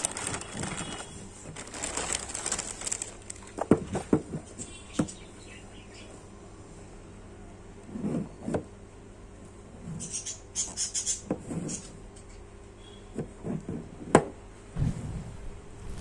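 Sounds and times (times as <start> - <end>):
plastic wrap scratching: 0.0 - 3.6, 15.8 - 16.0.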